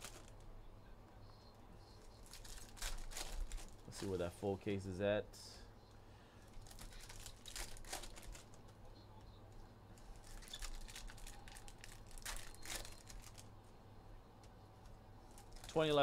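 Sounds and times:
foil wrappers crinkling: 0:00.0 - 0:00.4, 0:02.0 - 0:04.2, 0:06.5 - 0:08.7, 0:10.0 - 0:13.5, 0:15.3 - 0:16.0.

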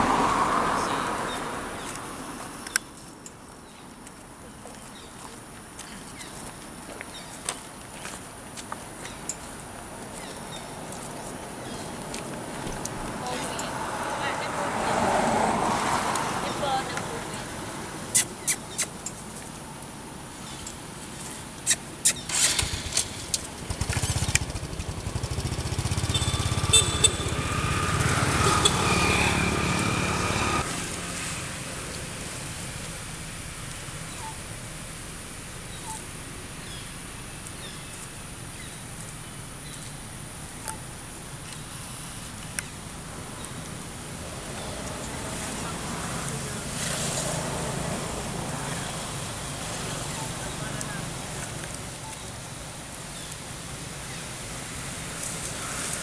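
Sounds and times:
outdoor background: 0:00.0 - 0:56.0
vehicle engine running with whine: 0:22.2 - 0:54.2.

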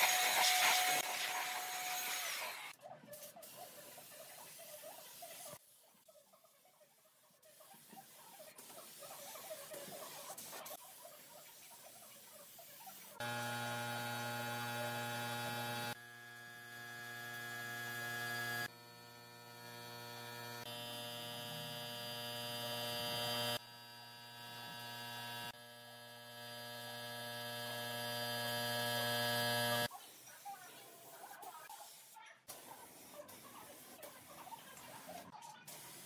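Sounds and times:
steady electric hum: 0:13.2 - 0:29.9.

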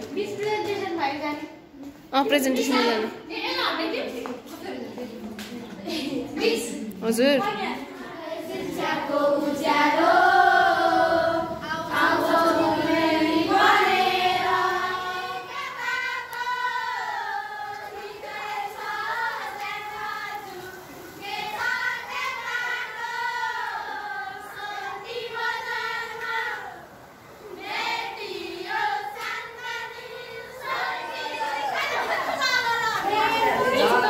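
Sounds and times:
children singing in unison: 0:08.0 - 0:34.0.

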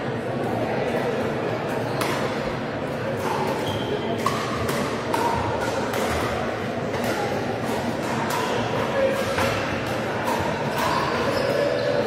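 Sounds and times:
indoor hall background din: 0:00.0 - 0:12.0.

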